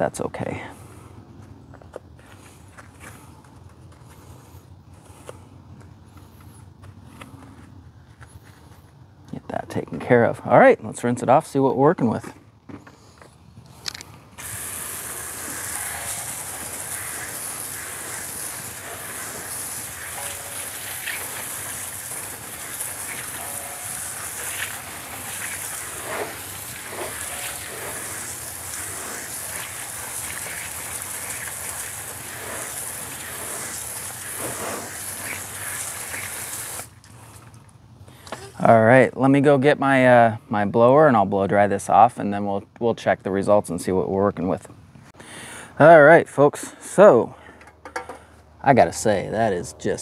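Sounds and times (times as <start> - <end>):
hose nozzle spraying water: 14.4 - 37.4.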